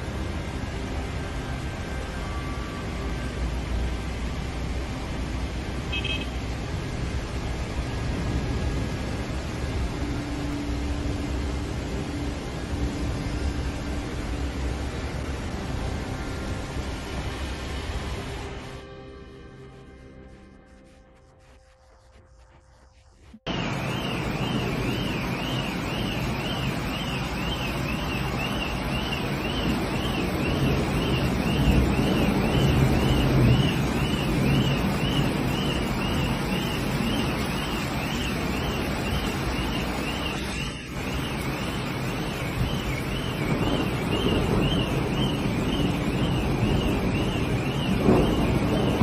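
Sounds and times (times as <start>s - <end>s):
rushing wind noise: 0.0s - 49.0s
alarm siren warbling: 23.4s - 49.0s.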